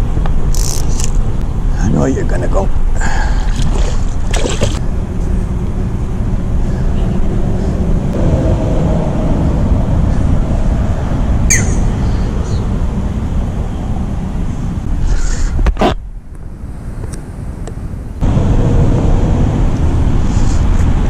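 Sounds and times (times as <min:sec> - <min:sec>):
wind buffeting microphone: 0:00.0 - 0:15.7.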